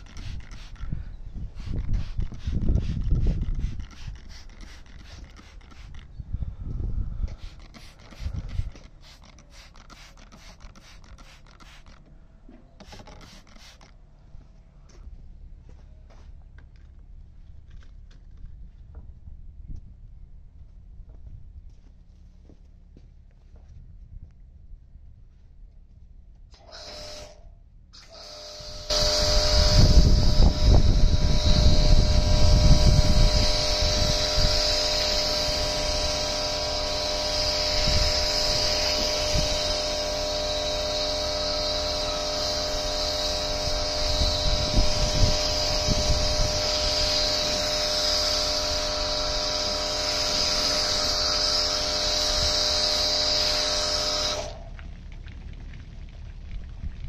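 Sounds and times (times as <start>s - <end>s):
pressure washer motor hum: 0.0s - 6.0s, 7.3s - 12.0s, 12.8s - 13.9s, 26.5s - 27.4s, 28.0s - 54.8s
high hiss of spray: 1.5s - 6.0s, 7.4s - 11.9s, 28.0s - 54.6s.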